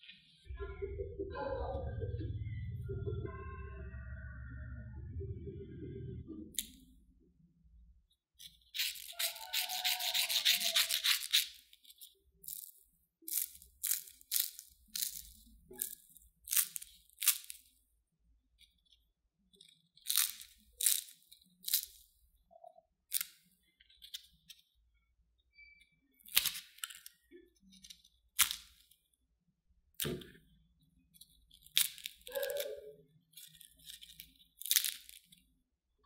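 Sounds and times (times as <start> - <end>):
crispy potato sticks snapping: 12.4 - 17.7, 26.2 - 27.1, 28.4 - 28.9, 31.6 - 32.7, 33.4 - 35.3.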